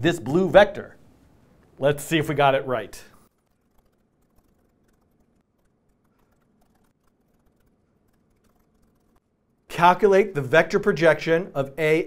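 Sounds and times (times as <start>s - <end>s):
typing on laptop keyboard: 3.2s - 9.2s.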